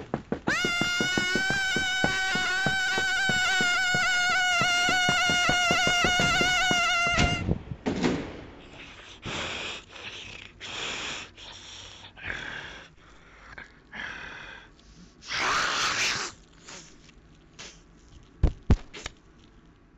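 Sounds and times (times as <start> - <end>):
person making monster hisses: 8.7 - 12.9, 15.0 - 17.0, 17.6 - 17.9.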